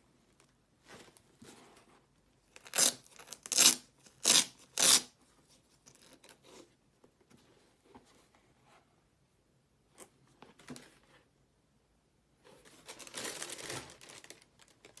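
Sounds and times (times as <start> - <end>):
tissue paper rustling: 12.5 - 15.0.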